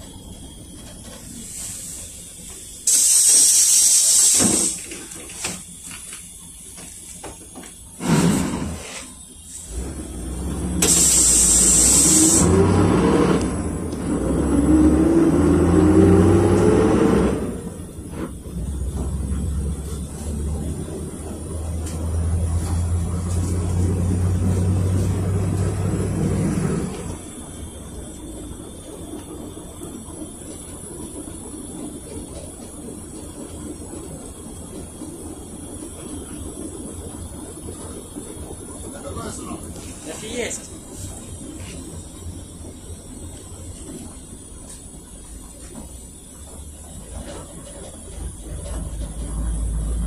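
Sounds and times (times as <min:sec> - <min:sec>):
bus engine running low: 0:00.0 - 0:50.0
compressed air hissing: 0:01.2 - 0:05.7, 0:07.8 - 0:13.4.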